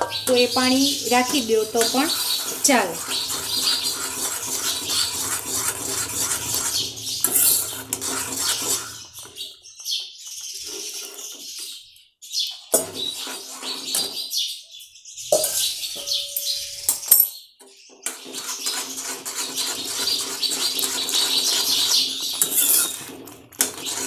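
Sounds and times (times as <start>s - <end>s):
liquid sizzling and bubbling in pan: 0.0s - 9.4s
steel spoon scraping pan: 0.0s - 9.4s, 12.8s - 14.1s, 19.8s - 24.0s.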